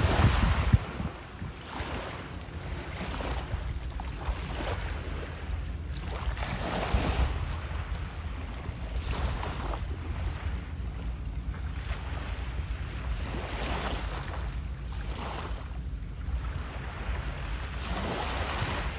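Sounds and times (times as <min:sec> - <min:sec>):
wind buffeting microphone: 0:00.0 - 0:05.3.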